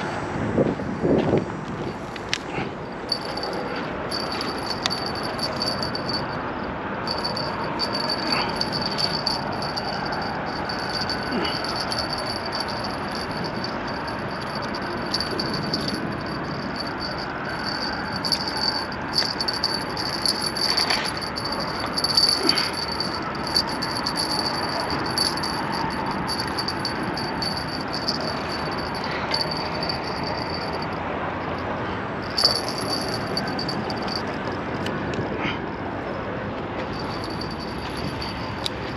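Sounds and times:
high-pitched rattling buzz: 3.1 - 31.6, 32.2 - 34.4.

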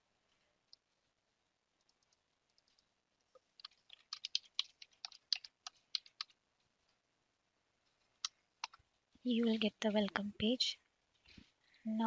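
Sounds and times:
typing on computer keyboard: 3.6 - 6.4.

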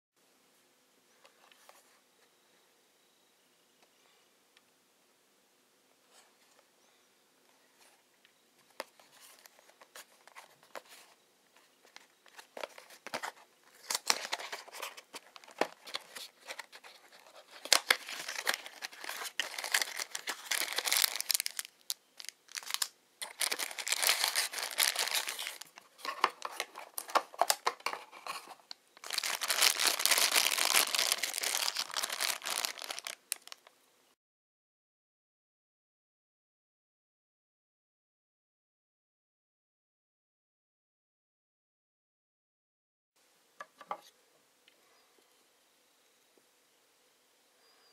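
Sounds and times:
plastic bag crinkling: 12.3 - 33.7.

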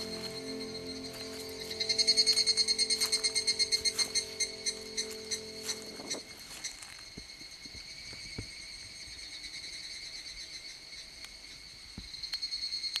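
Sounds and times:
insects trilling: 0.0 - 13.0.

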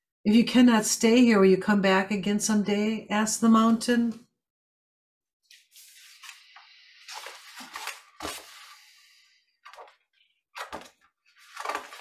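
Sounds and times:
paper rustling and pages turning: 5.5 - 9.0, 9.6 - 12.0.

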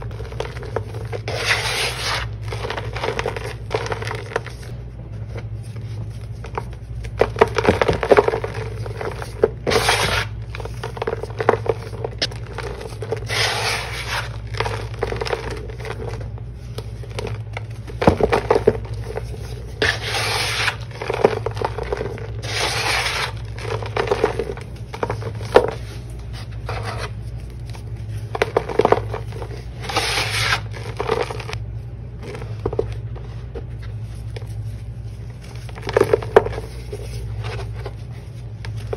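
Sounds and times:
steady low hum: 0.0 - 38.9.

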